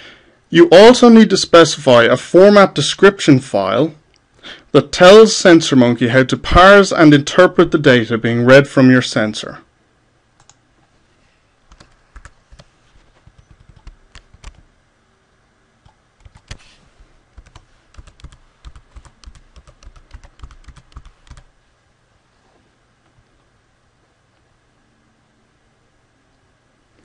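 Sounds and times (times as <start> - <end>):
typing on computer keyboard: 11.7 - 14.6, 15.8 - 16.6, 17.4 - 21.5.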